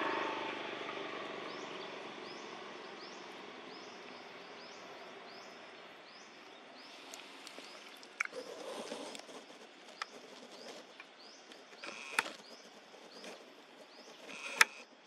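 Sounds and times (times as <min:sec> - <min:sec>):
small animal chirping: 0:07.1 - 0:15.0
sharp click: 0:14.2 - 0:14.9.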